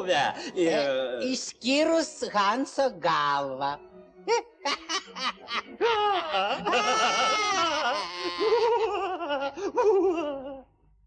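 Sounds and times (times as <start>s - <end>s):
men laughing loudly: 4.3s - 10.7s.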